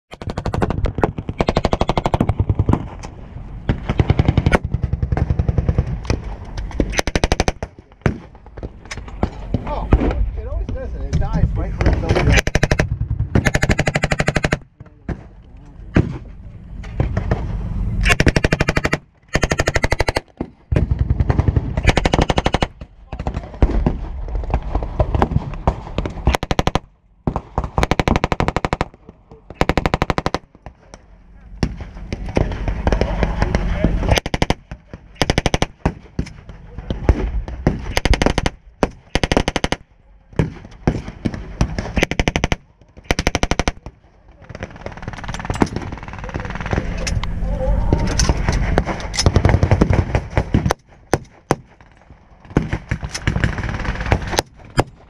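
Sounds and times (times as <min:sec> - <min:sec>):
machine gun firing bursts: 0:00.1 - 0:02.9, 0:03.7 - 0:06.0, 0:06.9 - 0:07.7, 0:12.3 - 0:14.6, 0:18.0 - 0:22.8, 0:25.2 - 0:29.0, 0:29.6 - 0:30.5, 0:32.2 - 0:36.2, 0:37.1 - 0:39.8, 0:40.4 - 0:47.0, 0:48.7 - 0:55.0.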